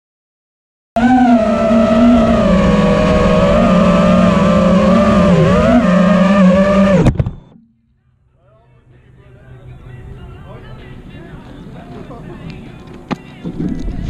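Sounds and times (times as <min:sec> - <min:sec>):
drone motors whining: 0:01.0 - 0:07.6.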